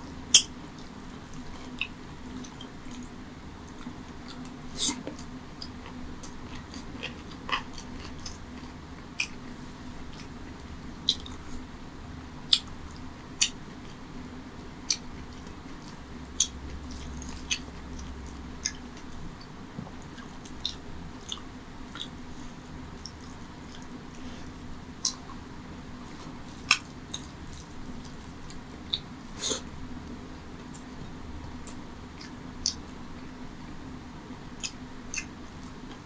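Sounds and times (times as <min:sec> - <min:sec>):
steady low hum: 0:00.0 - 0:36.0
wet chewing and mouth smacks: 0:00.3 - 0:09.4, 0:14.8 - 0:22.2, 0:31.5 - 0:32.8, 0:34.6 - 0:36.0.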